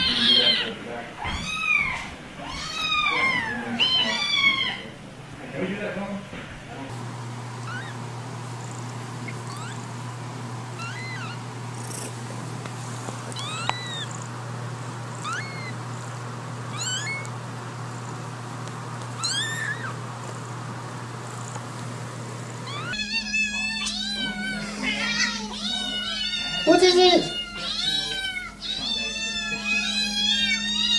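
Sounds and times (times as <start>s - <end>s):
cats meowing loudly: 0.0s - 4.9s, 7.6s - 8.0s, 9.2s - 9.9s, 10.8s - 11.5s, 13.3s - 14.3s, 15.1s - 15.9s, 16.7s - 17.4s, 19.1s - 20.0s, 22.6s - 30.9s
kitten mewing: 0.0s - 4.9s, 7.6s - 8.0s, 8.6s - 10.0s, 10.7s - 12.4s, 13.2s - 14.4s, 15.0s - 18.2s, 19.1s - 20.0s, 22.6s - 30.9s
faint steady hum: 0.0s - 30.9s.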